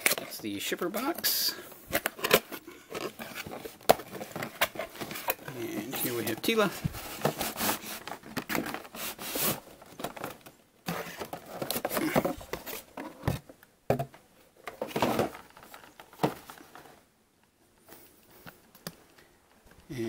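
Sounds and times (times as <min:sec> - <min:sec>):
cardboard box rustling and scraping: 0:02.0 - 0:10.2.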